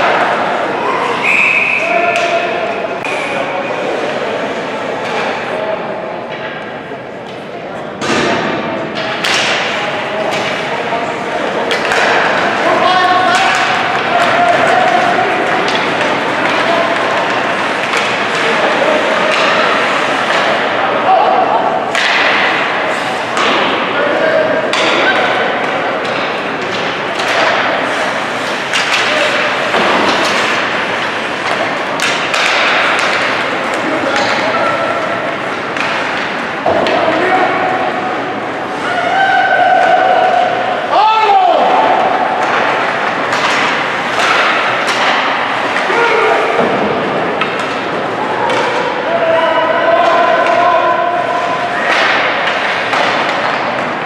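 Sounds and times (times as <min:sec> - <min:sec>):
voices calling out in a hall: 0:00.0 - 0:54.0
sticks and puck knocking on boards: 0:24.7 - 0:27.9, 0:28.5 - 0:34.5, 0:41.3 - 0:48.9, 0:51.8 - 0:54.0.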